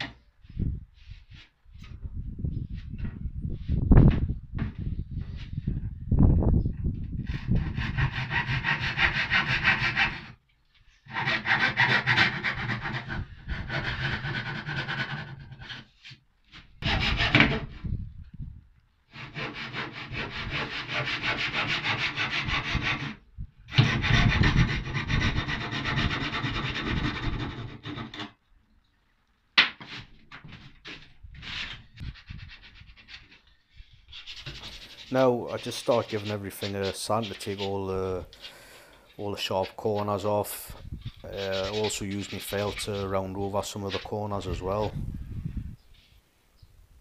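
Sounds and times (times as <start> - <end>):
handsaw cutting plywood: 7.3 - 10.4, 11.1 - 16.2, 16.8 - 17.7, 19.1 - 28.4, 34.2 - 37.9, 41.3 - 44.2
short scrapes: 29.8 - 44.6.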